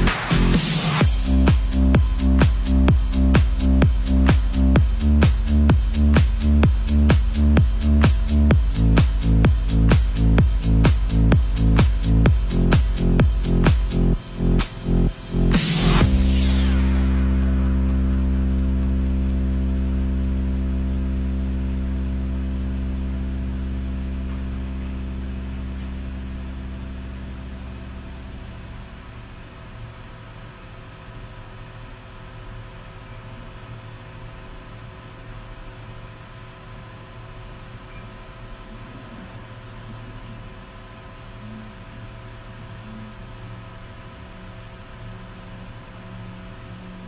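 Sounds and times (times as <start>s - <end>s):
low electronic music drone: 0.0s - 29.9s, 36.6s - 47.0s
printer hum with high whines: 21.6s - 47.0s.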